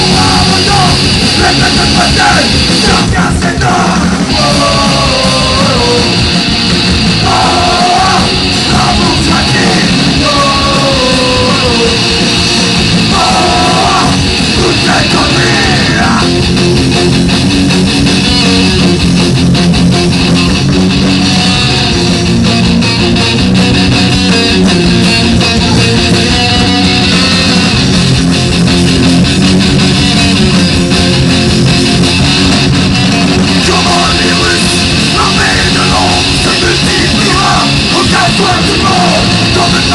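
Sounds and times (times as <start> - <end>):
singer shouting into microphone: 0.0 - 6.1, 7.2 - 12.0, 13.1 - 16.4, 33.6 - 39.9
electric guitar: 0.0 - 39.9
punk band playing live: 0.0 - 39.9.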